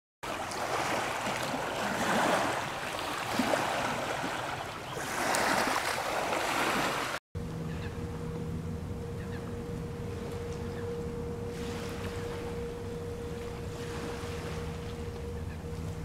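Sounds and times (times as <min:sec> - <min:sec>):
small waves lapping on shore: 0:00.2 - 0:07.2, 0:11.5 - 0:15.5
low hum with held tone: 0:07.4 - 0:16.0.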